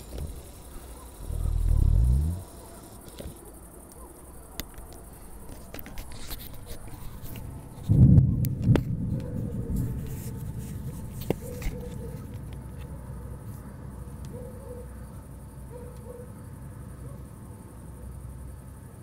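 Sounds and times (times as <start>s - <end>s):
low background rumble: 0.0s - 3.0s
faint ticks: 0.0s - 6.6s
thunder rumbling: 1.2s - 2.5s.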